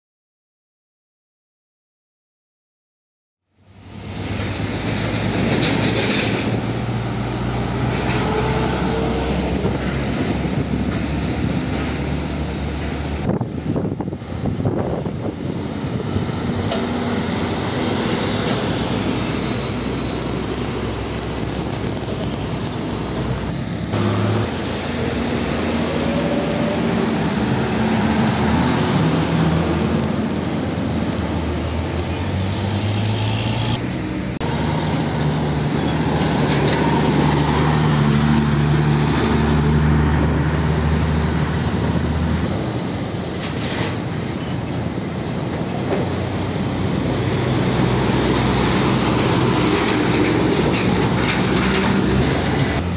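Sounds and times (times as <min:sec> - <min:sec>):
road traffic: 0:03.5 - 0:52.9
diesel trucks passing: 0:03.6 - 0:52.9.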